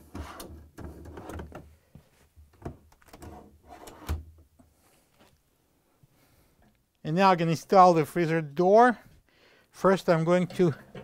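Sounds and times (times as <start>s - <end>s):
metal drawer rails sliding: 3.2s - 4.2s.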